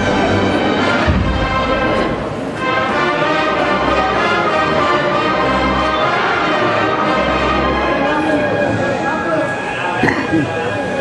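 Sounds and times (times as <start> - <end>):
brass band playing a march: 0.0 - 10.9
low drum beats: 1.0 - 2.6.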